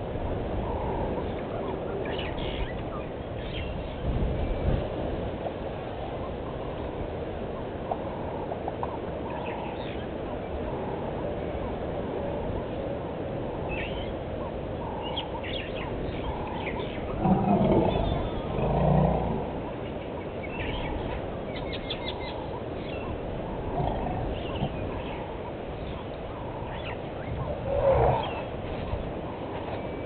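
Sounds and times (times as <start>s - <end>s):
birds chirping: 0.7s - 4.8s, 13.6s - 30.0s.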